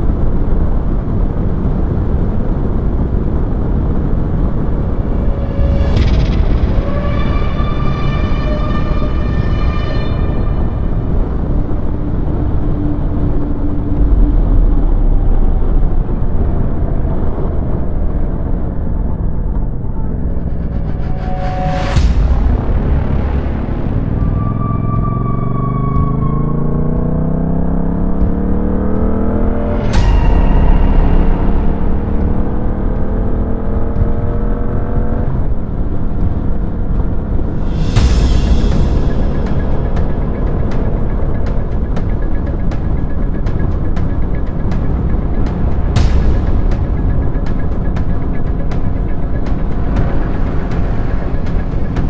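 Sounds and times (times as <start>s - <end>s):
rushing air: 0.0s - 25.0s, 37.2s - 52.0s.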